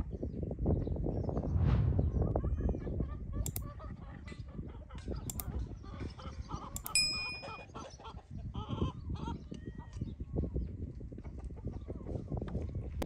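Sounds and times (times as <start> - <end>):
metallic ding: 6.9 - 7.7.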